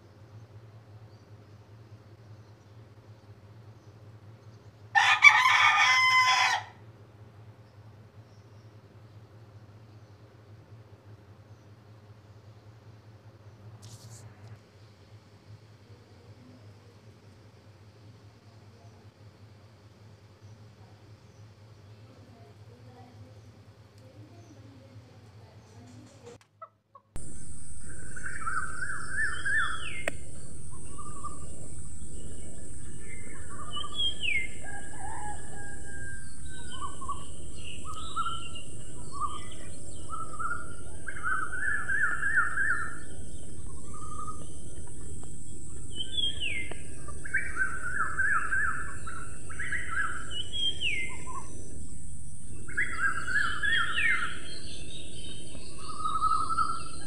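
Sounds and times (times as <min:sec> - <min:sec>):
steady high hiss: 0:11.8 - 0:26.4, 0:27.2 - 0:57.0
small birds chirping: 0:27.2 - 0:57.0.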